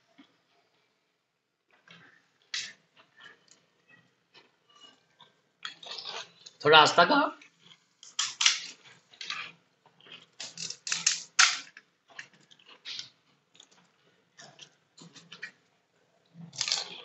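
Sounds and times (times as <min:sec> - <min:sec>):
crisp shells crackling and crunching: 0:07.5 - 0:13.8, 0:16.3 - 0:17.0.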